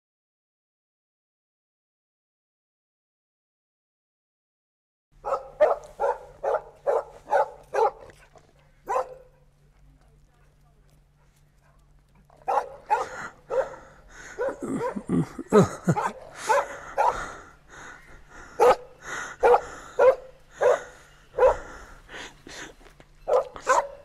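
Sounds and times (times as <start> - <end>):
dog barking and yelping: 5.2 - 9.5, 12.4 - 15.2, 15.8 - 17.4, 18.6 - 21.7, 23.2 - 24.0.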